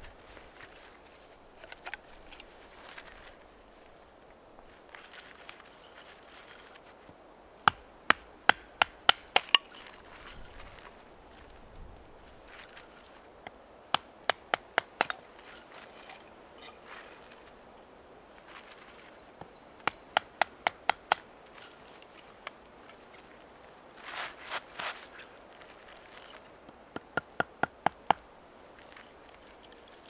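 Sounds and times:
crackling rustle: 0.0 - 26.9, 27.7 - 30.0
blade knocking through wood: 7.7 - 9.8.

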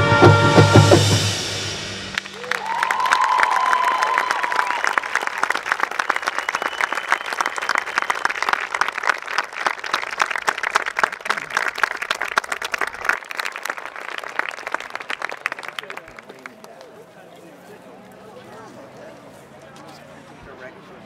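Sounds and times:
crowd clapping: 2.1 - 17.1.

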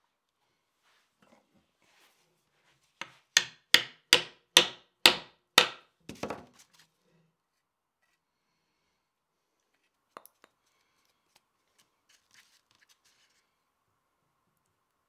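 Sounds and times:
wooden mallet striking metal: 3.4 - 5.8.

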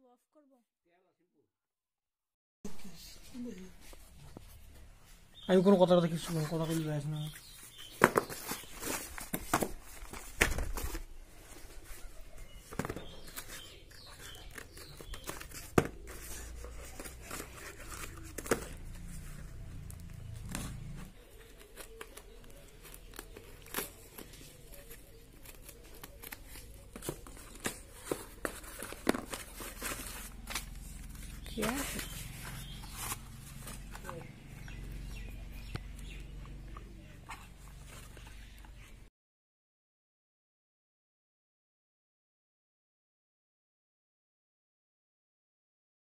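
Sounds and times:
scissors snipping packaging: 21.3 - 34.7.

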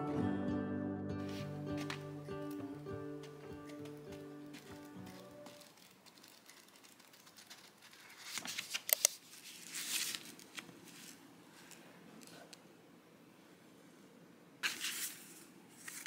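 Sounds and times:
paper rustling: 1.2 - 2.1, 3.2 - 12.4, 14.6 - 16.0.

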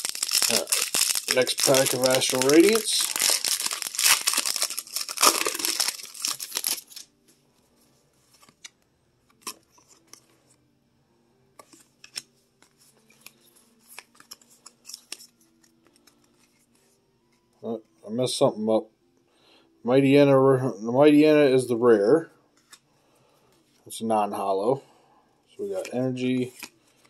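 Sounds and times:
trading cards clicking and rustling: 0.0 - 7.0, 11.6 - 16.7, 25.6 - 26.8
foil wrapper crinkling and tearing: 0.0 - 7.1.

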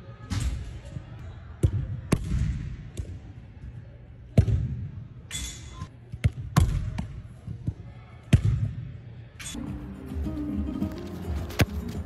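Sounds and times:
balls thudding: 10.9 - 12.0.

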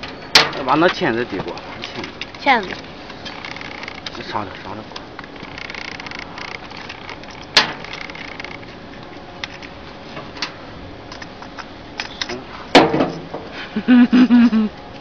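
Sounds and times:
rustling of wiring: 0.0 - 13.6
small metallic clicks: 5.2 - 8.6.

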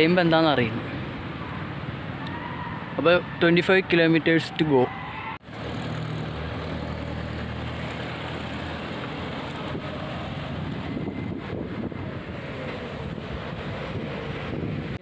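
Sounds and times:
road noise: 0.0 - 15.0.

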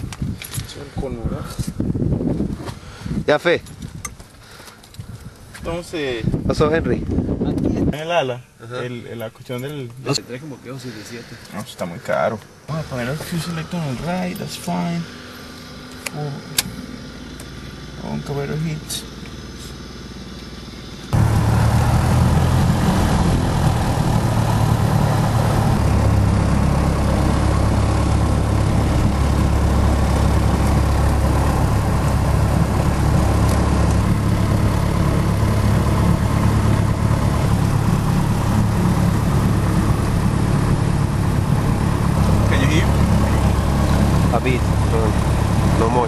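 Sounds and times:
aircraft piston engine running: 10.8 - 46.0.

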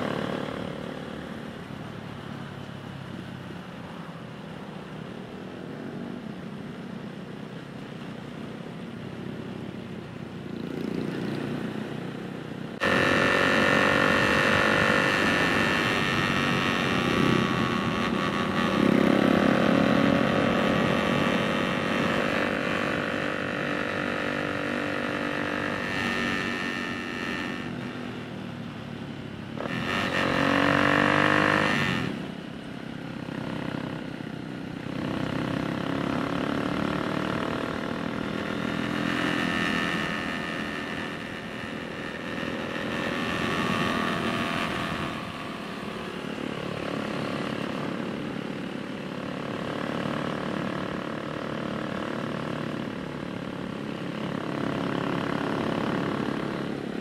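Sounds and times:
small motorcycle engine revving: 12.8 - 28.2, 29.6 - 32.3, 34.9 - 48.6, 49.4 - 57.0.

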